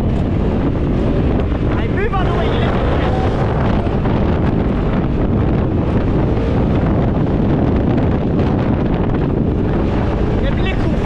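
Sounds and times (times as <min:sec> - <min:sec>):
vehicle engine running: 0:00.0 - 0:11.0
wind buffeting microphone: 0:00.0 - 0:11.0.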